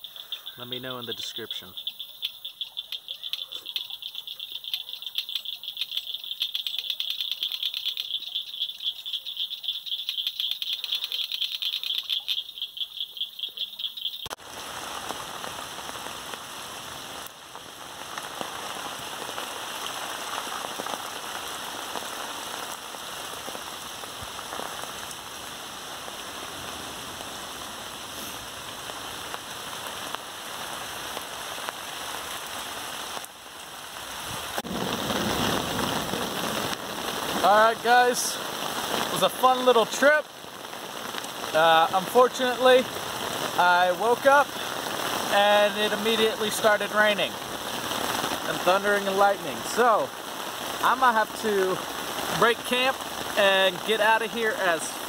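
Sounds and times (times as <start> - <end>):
insects calling: 0.0 - 14.4, 34.6 - 55.0
rain falling on a river: 0.0 - 55.0.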